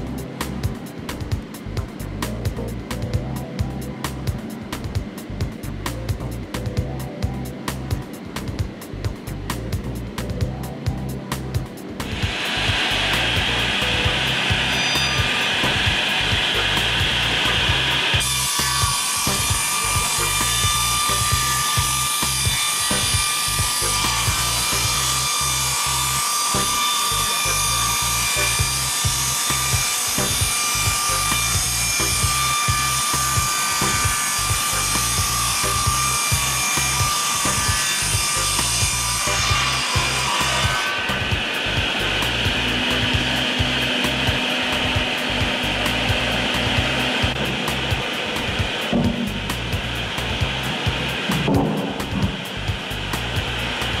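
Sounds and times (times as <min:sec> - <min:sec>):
background music: 0:00.0 - 0:54.0
circular saw cutting timber: 0:11.8 - 0:54.0.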